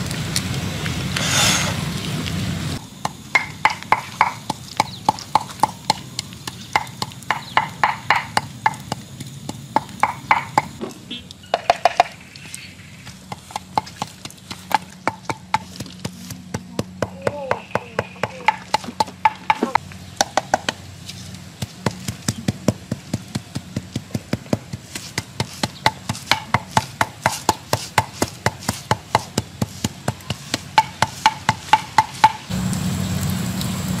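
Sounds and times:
wooden pestle pounding in mortar: 3.0s - 10.8s, 11.5s - 12.2s, 13.2s - 20.8s, 21.6s - 32.5s.

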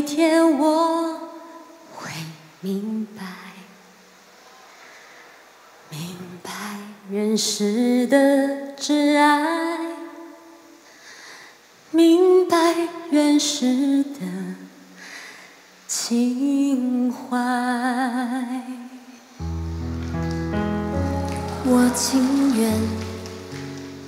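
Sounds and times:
woman singing a slow ballad: 0.0s - 3.7s, 5.9s - 10.8s, 11.9s - 14.9s, 15.9s - 19.2s, 20.9s - 24.0s
instrumental accompaniment with bass: 19.4s - 24.0s.

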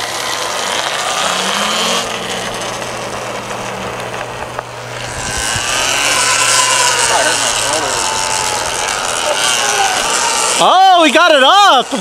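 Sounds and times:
tyre and wind noise: 0.0s - 6.6s
electric dirt bike whining by: 0.0s - 12.0s.

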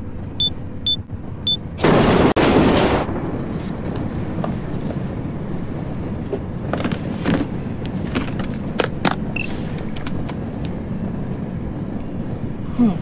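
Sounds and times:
train carriage rumble: 0.0s - 13.0s
high pulsing beep: 3.1s - 9.5s
short beep: 4.0s - 8.8s.

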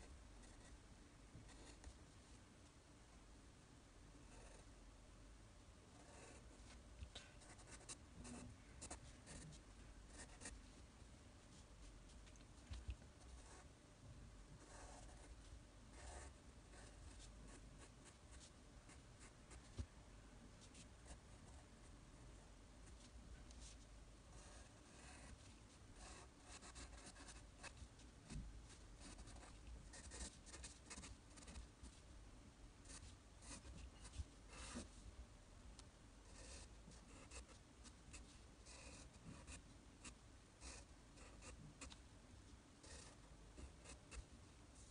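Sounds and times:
pencil scratching on paper: 6.0s - 6.8s, 7.4s - 10.6s, 14.6s - 15.4s, 16.0s - 19.0s, 24.4s - 27.8s, 28.7s - 31.6s, 32.9s - 35.0s, 36.4s - 41.9s.

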